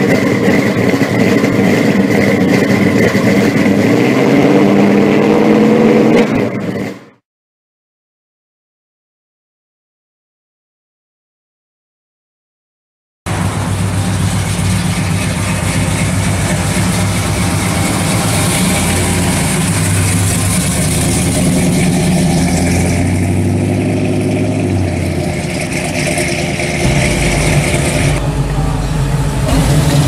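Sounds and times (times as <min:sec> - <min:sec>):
car engine exhaust rumble: 0:00.0 - 0:07.1, 0:13.3 - 0:30.0.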